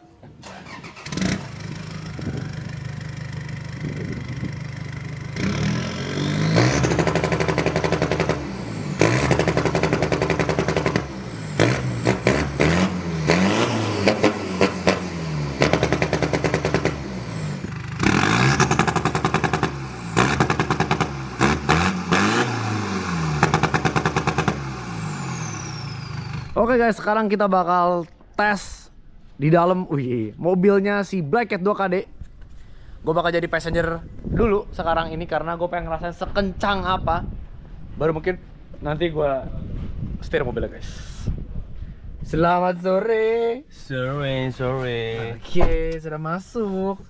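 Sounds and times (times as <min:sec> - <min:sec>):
diesel engine revving: 0:00.4 - 0:26.7.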